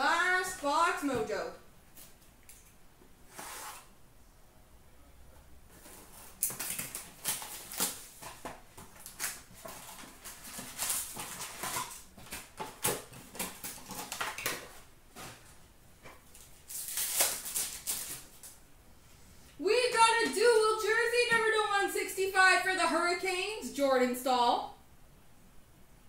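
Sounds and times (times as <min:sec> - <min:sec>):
card pack wrappers crinkling: 0:05.8 - 0:15.5, 0:16.1 - 0:18.6.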